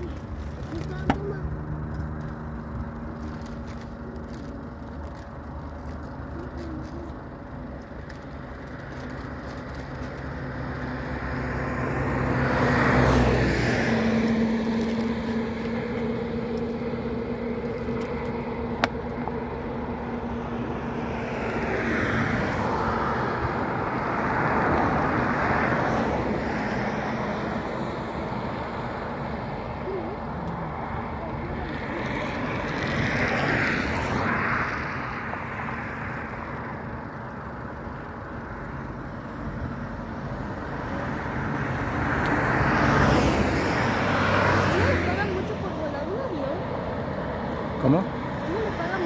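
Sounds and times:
passing road traffic: 0.0s - 49.0s
jet engines humming: 13.2s - 33.5s.

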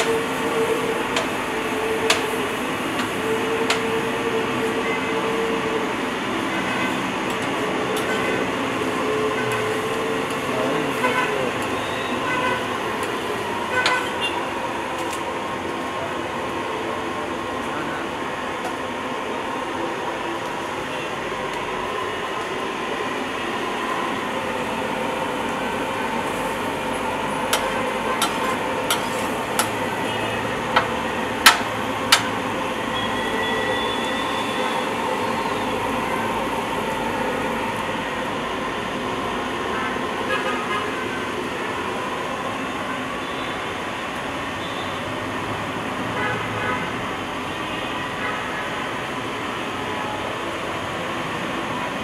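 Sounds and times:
street noise: 0.0s - 52.0s
metal spatula striking griddle: 27.5s - 29.8s, 30.8s - 32.3s.

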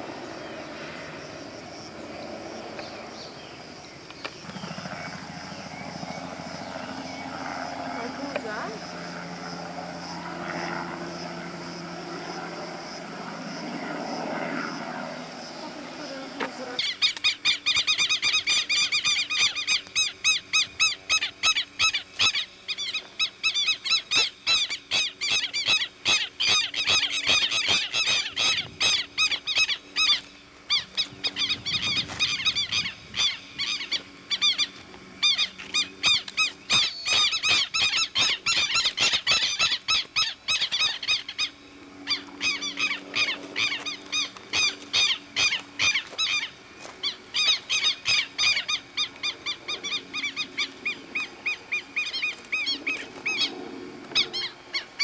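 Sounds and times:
high squeaky animal chirps: 35.2s - 41.5s.

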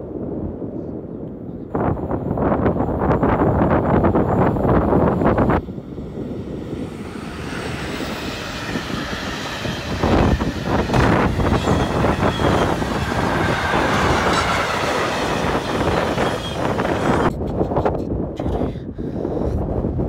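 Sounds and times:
freight train wheels rumbling: 4.0s - 19.6s
wheels clattering over rails: 7.1s - 17.3s.

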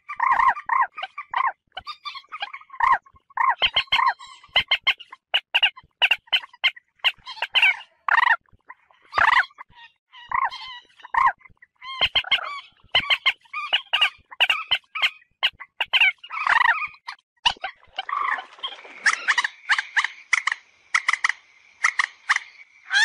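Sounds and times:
moorhen calling: 0.0s - 8.4s, 9.1s - 18.4s.

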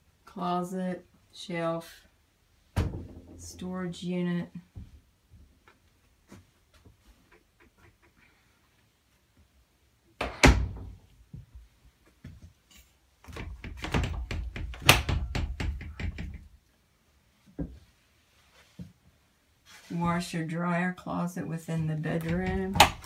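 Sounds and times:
doors knocking and rattling: 13.3s - 16.6s, 22.2s - 23.0s.

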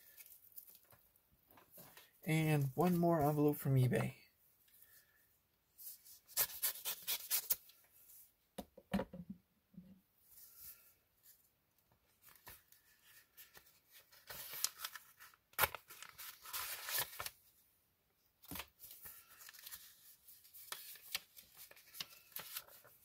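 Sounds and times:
paper envelope tearing: 6.3s - 7.7s, 14.0s - 17.4s.

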